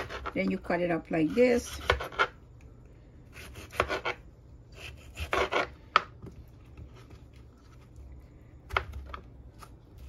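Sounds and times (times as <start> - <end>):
knife slicing squash: 0.0 - 0.5, 1.2 - 2.4, 3.3 - 6.1.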